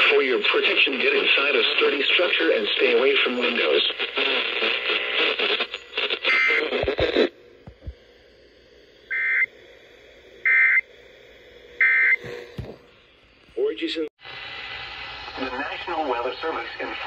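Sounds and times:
noisy radio static: 0.0s - 17.0s
warbling data bursts: 1.8s - 12.2s
radio handling thumps: 6.4s - 8.0s, 12.2s - 12.9s.

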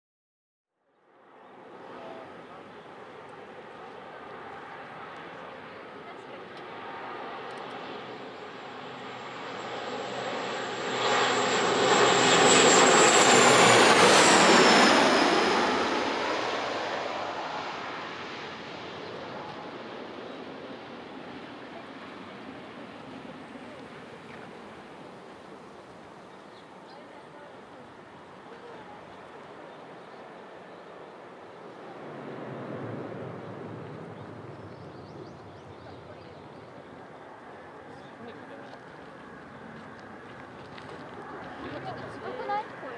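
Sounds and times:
airliner passing overhead: 1.0s - 42.9s
high jet whine: 3.4s - 26.3s
small birds chirping: 33.9s - 38.8s.

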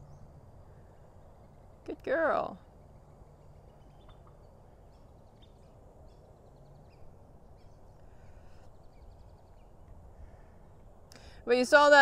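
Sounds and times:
faint outdoor background noise: 0.0s - 12.0s
rapid bird trill: 2.6s - 10.4s
bird chirps: 2.7s - 10.0s.

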